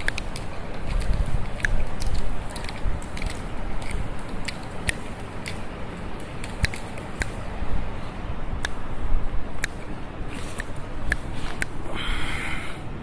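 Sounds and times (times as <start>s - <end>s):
cat claws scratching bark: 0.0s - 7.4s.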